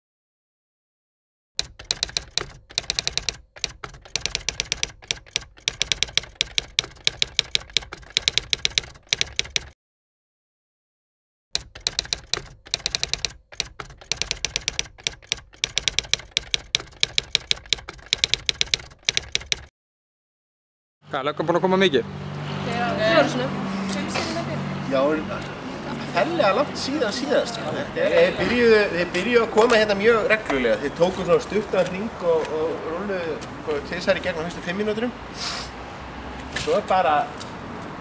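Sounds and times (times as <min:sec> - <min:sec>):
typewriter key clicks: 0:01.6 - 0:09.8, 0:11.6 - 0:19.7.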